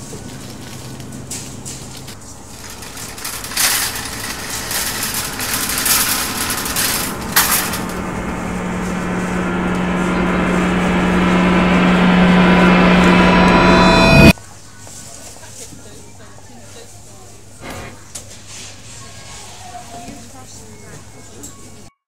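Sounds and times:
low droning tone: 2.2 - 14.3
noisy hits and knocks: 2.5 - 14.3.

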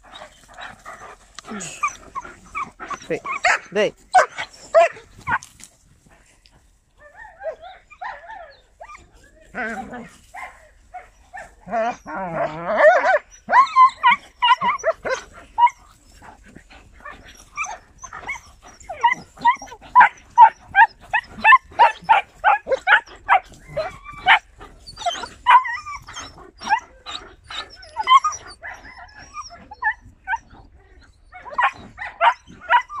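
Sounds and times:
dogs barking and yipping: 0.0 - 5.6, 7.0 - 33.0
dog whimpers: 1.4 - 4.9, 11.6 - 15.9, 17.1 - 33.0
dog whining: 11.6 - 15.9, 17.1 - 33.0.

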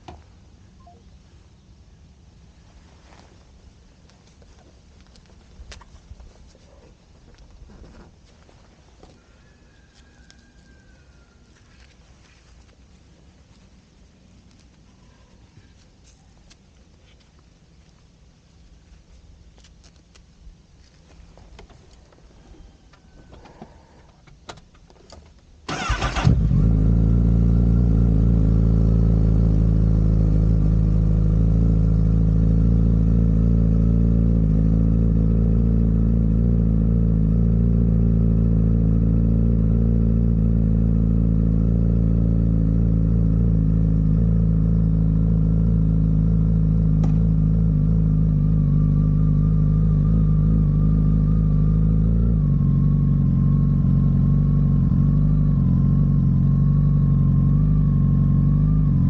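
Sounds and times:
motorcycle starter cranking: 25.7 - 26.6
motorcycle engine idling: 25.7 - 59.0.

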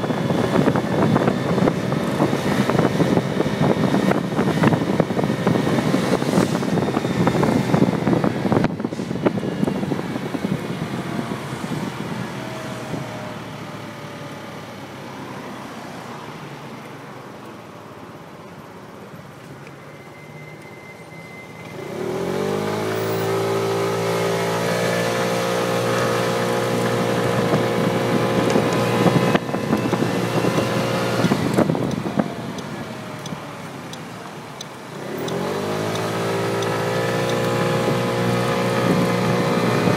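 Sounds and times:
wind buffeting microphone: 0.0 - 13.4, 25.0 - 33.6, 35.7 - 39.9
scooter engine: 21.8 - 39.9.

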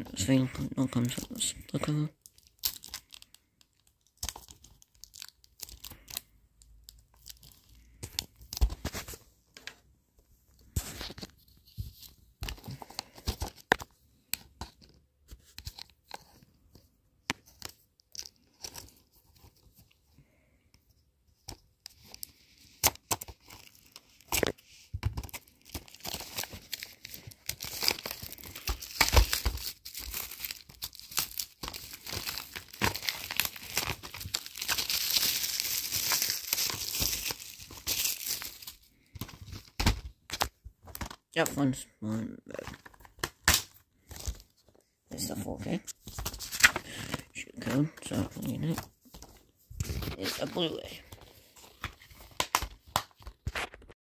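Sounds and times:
plastic film tearing and crinkling: 2.2 - 6.3, 22.0 - 41.1.

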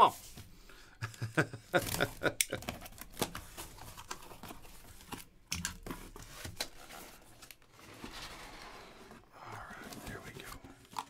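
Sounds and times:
packing tape tearing: 1.8 - 4.2
cardboard scraping and rustling: 1.8 - 10.2.

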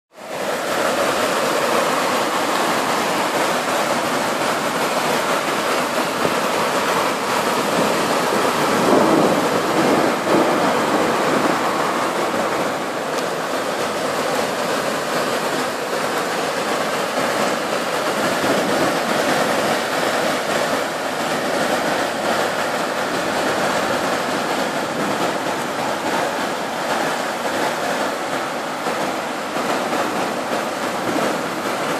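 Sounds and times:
heavy rain pouring: 0.1 - 31.9.

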